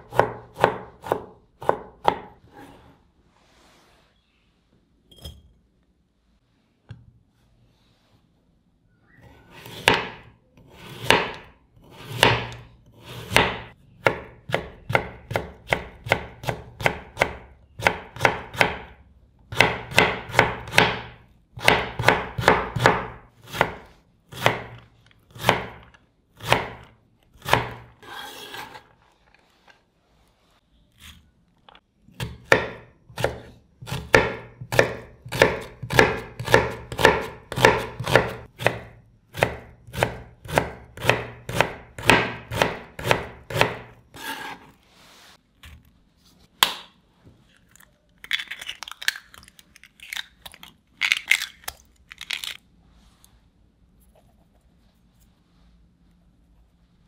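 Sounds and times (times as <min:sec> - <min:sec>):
knife cutting vegetables on board: 0:00.0 - 0:02.9, 0:09.5 - 0:18.9, 0:19.5 - 0:29.0, 0:32.2 - 0:44.8.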